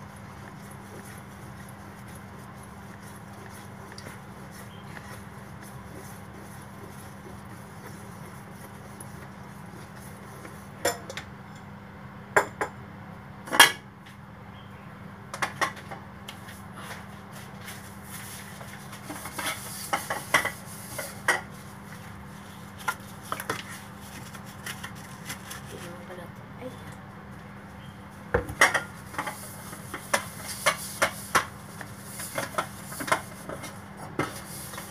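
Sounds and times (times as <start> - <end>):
whisk clinking against metal bowl: 0.0 - 11.1.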